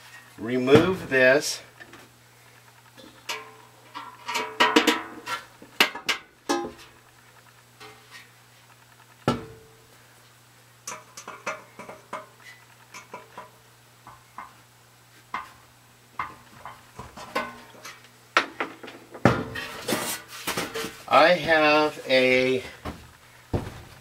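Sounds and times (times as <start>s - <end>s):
sheet metal clicks and clanks: 10.9s - 13.6s.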